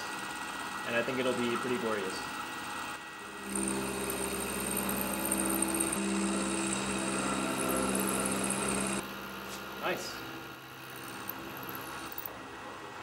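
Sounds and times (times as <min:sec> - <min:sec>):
end mill cutting metal: 0:03.2 - 0:12.4.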